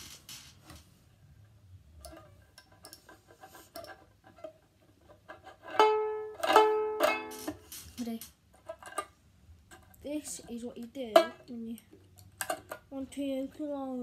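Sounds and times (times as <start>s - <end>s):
ukulele strummed chords: 5.7s - 7.4s.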